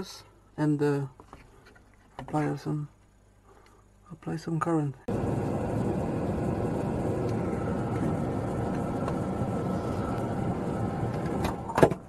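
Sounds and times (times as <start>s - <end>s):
extractor fan running: 5.1s - 12.0s.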